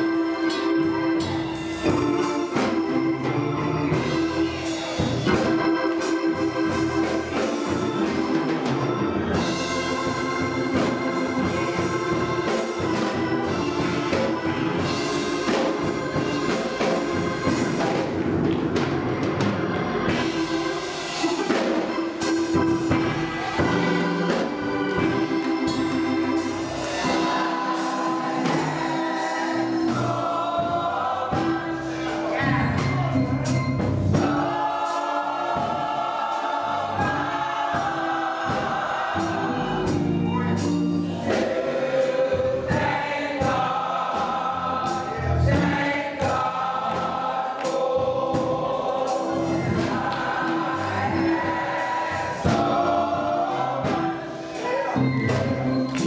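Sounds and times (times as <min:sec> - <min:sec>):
gospel choir singing: 0:00.0 - 0:56.0
organ: 0:00.0 - 0:56.0
sharp percussion hits: 0:00.0 - 0:56.0.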